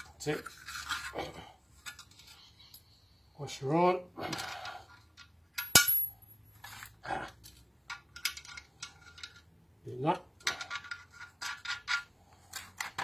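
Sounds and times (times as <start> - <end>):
steel parts clinking on metal: 4.4 - 9.5.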